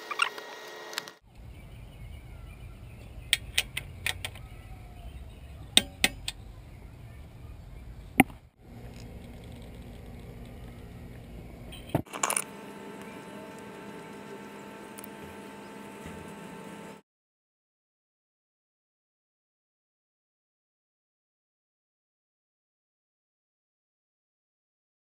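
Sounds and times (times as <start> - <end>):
steady low rumble: 6.3 - 12.0.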